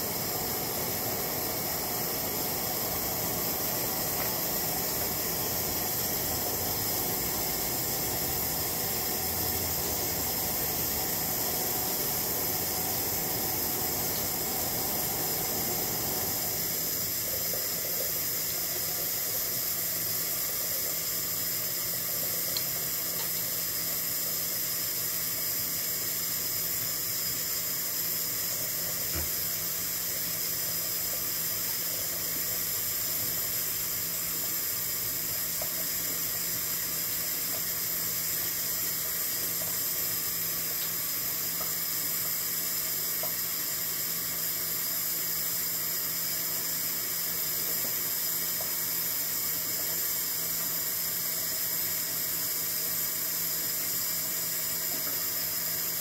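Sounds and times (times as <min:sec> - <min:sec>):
faucet running into steel sink: 0:00.0 - 0:24.5.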